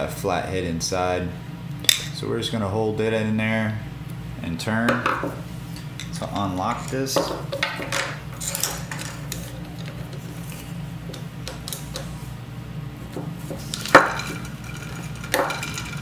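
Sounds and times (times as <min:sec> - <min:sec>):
tools scraping and clinking metal: 0:05.8 - 0:12.2, 0:13.4 - 0:16.0.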